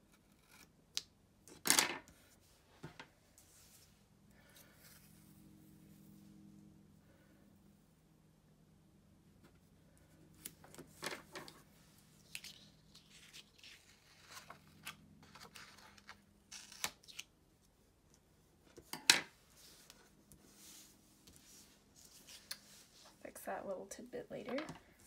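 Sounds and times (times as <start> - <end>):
paper and tape rustling: 10.4 - 17.3.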